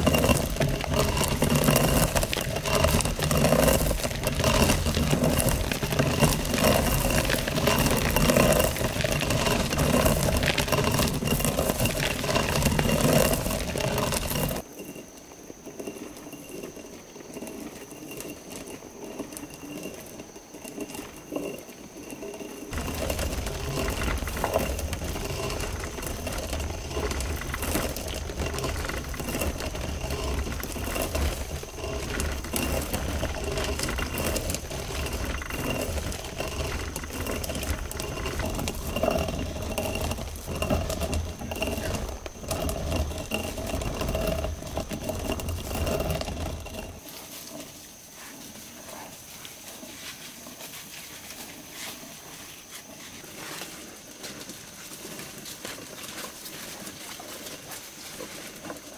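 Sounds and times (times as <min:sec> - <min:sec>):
knocks of turning millstone: 0:00.0 - 0:15.0, 0:15.6 - 0:47.6
stone mill grinding grain: 0:00.0 - 0:47.8.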